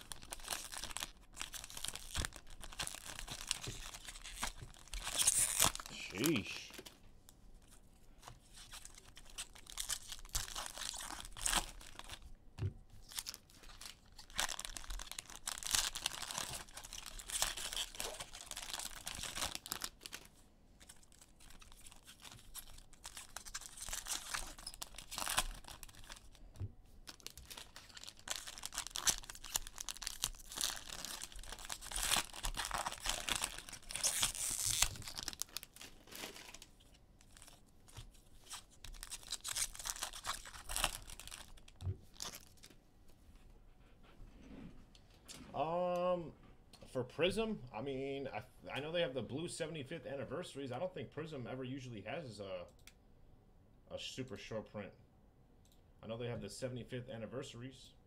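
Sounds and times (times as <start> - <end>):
plastic wrappers tearing and crinkling: 0.0 - 7.0, 8.4 - 12.3, 13.0 - 26.4, 27.0 - 42.7.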